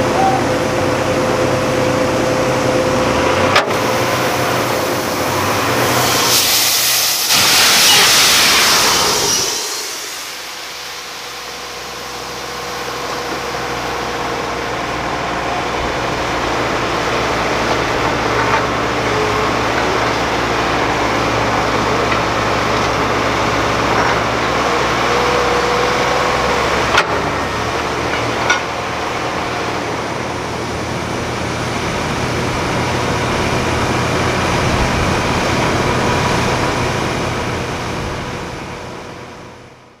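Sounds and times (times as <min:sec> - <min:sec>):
drilling rig running: 0:00.0 - 0:40.0
sharp metallic knocks: 0:28.0 - 0:28.8.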